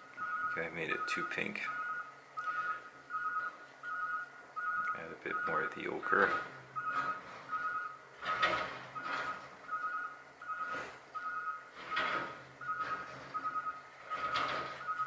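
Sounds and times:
faint pulsing tone: 0.0 - 8.0.

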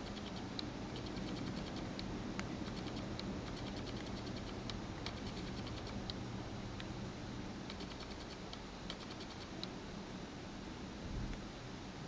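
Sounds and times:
light irregular clicks and ticks: 0.0 - 6.2, 7.7 - 9.8
steady low hum: 0.0 - 12.0.

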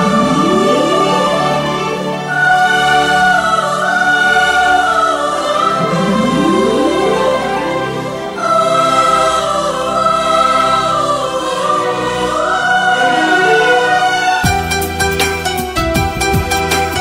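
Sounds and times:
slow gliding melodic song intro: 0.0 - 10.3, 11.4 - 15.1.

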